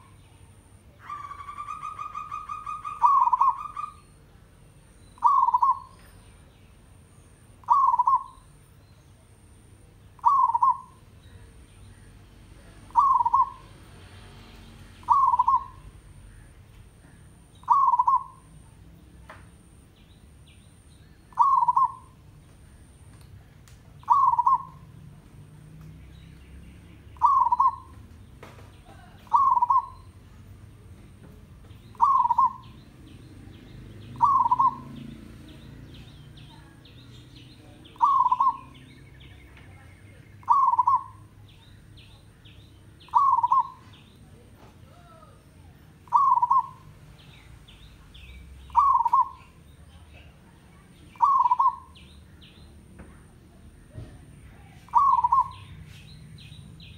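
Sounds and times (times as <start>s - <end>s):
dove cooing: 0.9s - 4.2s, 5.2s - 6.0s, 7.6s - 8.5s, 10.2s - 11.0s, 12.8s - 13.8s, 15.0s - 18.6s, 21.3s - 22.2s, 24.0s - 25.0s, 27.1s - 28.0s, 28.8s - 30.2s, 31.9s - 33.0s, 34.0s - 37.0s, 37.6s - 38.9s, 40.4s - 41.4s, 43.0s - 44.1s, 46.0s - 46.9s, 48.7s - 49.6s, 51.1s - 52.0s, 54.8s - 55.8s
faint small bird chirps: 53.8s - 56.9s.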